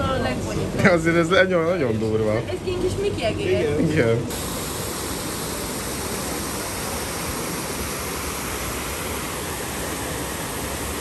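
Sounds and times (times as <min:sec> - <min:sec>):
fountain water rushing: 0:04.3 - 0:11.0.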